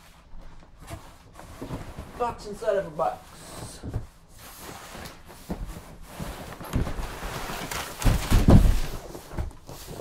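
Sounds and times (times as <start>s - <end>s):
cardboard boxes scraping: 3.1s - 10.0s.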